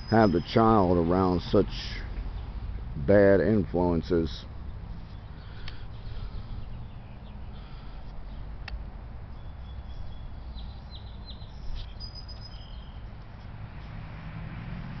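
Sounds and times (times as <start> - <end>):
songbirds chirping: 0.0 - 15.0
thin high bird whistles: 9.4 - 13.1.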